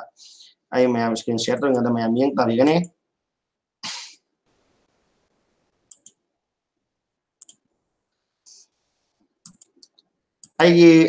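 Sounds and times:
computer mouse clicks: 5.9 - 6.2, 7.4 - 7.6, 9.4 - 10.6
soft brushing: 8.1 - 9.3.

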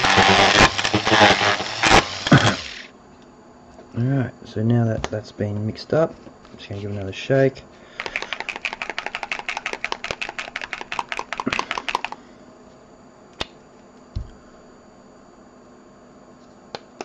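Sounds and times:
paint bottle rattling: 8.0 - 12.1.

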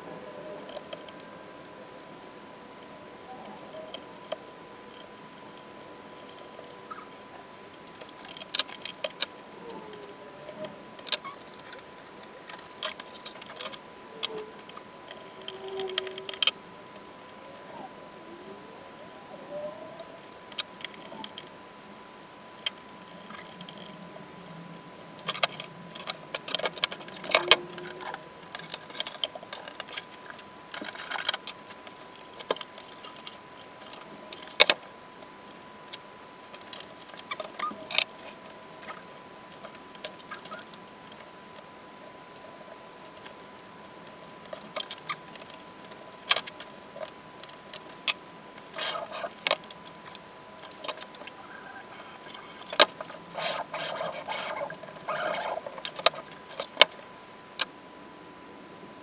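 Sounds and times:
small hard parts clicking and rattling: 3.4 - 18.6, 25.1 - 41.7, 43.0 - 57.7.

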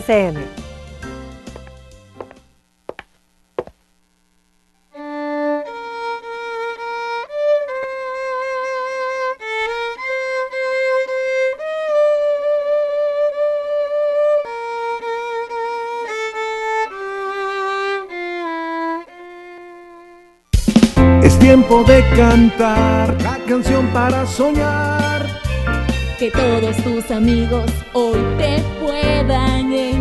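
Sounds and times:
solo violin slow melody: 4.9 - 20.4.

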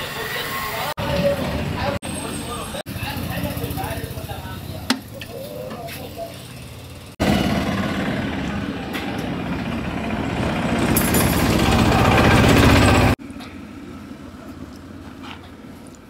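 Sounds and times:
street noise: 0.0 - 16.0
diesel truck engine rattling: 6.1 - 14.3.

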